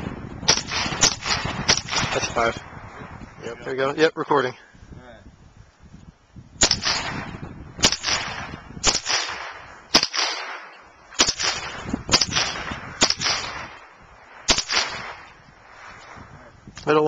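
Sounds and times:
rifle shots with echo: 0.5 - 2.5, 6.6 - 15.4.

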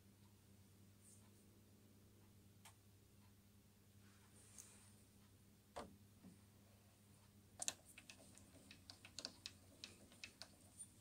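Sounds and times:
clicks and taps on metal: 7.6 - 11.0.

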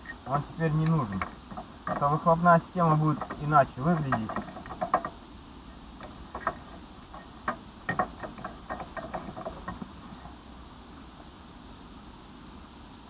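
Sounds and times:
hand tools clinking on metal: 0.3 - 5.2, 6.0 - 9.9.

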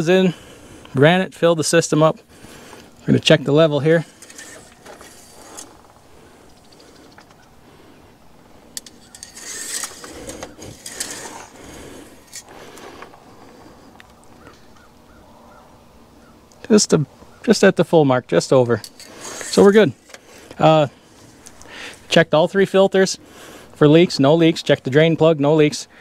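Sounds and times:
dipstick scraping in metal tube: 3.9 - 5.9, 8.7 - 12.5, 18.8 - 21.6.

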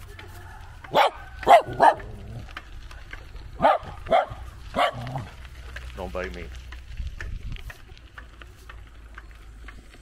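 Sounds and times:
small dog barking: 0.9 - 2.2, 3.6 - 5.3.

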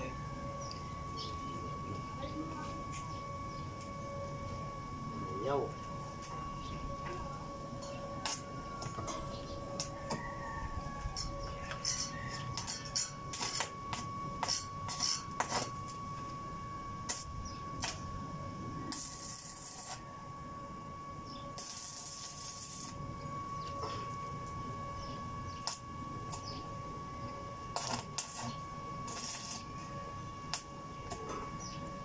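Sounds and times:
thin high tone: 0.0 - 32.0
welding arc crackling: 8.2 - 9.0, 11.1 - 16.3, 17.0 - 18.1, 18.8 - 20.3, 21.5 - 23.1, 25.5 - 26.7, 27.6 - 31.3
welding arc sizzling hiss: 8.2 - 9.0, 11.0 - 16.3, 17.0 - 18.1, 18.8 - 20.3, 21.5 - 23.0, 25.6 - 26.6, 27.6 - 32.0.

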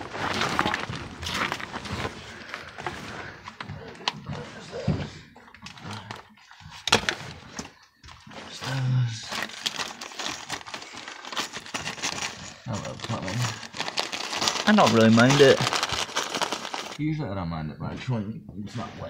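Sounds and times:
scraping and rustling: 5.7 - 17.0.

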